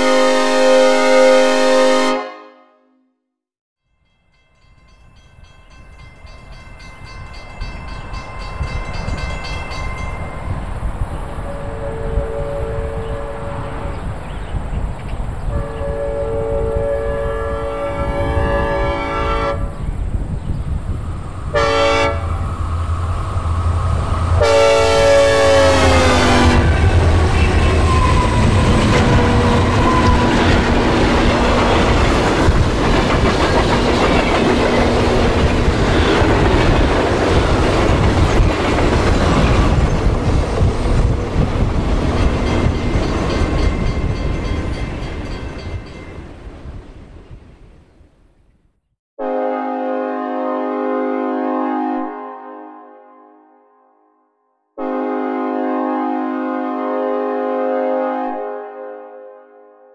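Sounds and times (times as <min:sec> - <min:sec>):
locomotive air horn blasts: 0:00.0 - 0:03.2, 0:11.5 - 0:13.9, 0:15.5 - 0:19.7, 0:21.5 - 0:31.8, 0:49.2 - 0:53.6, 0:54.8 - 0:59.8
train rumble with wheel clatter: 0:04.4 - 0:47.6.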